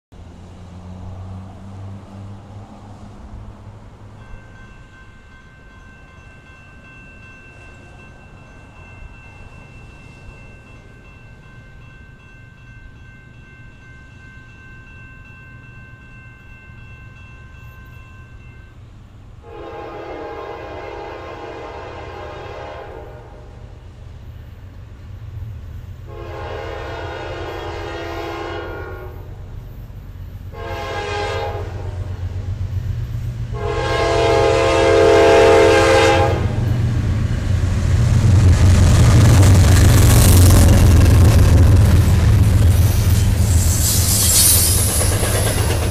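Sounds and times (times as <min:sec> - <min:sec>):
locomotive air horn: 0:19.4 - 0:23.6, 0:26.1 - 0:29.4, 0:30.5 - 0:32.2, 0:33.5 - 0:36.7
train wheel noise: 0:20.1 - 0:45.9
locomotive engine rumble: 0:29.2 - 0:45.9.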